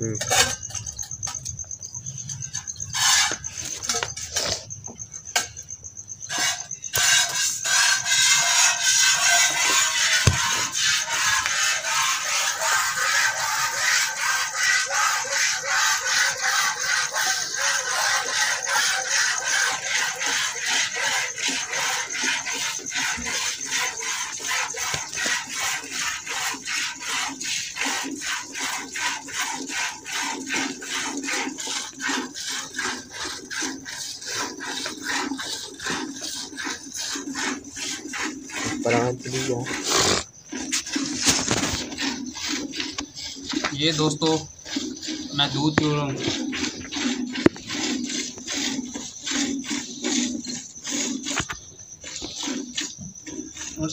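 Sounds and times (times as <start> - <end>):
milk squirting into steel can: 19.4 - 53.8.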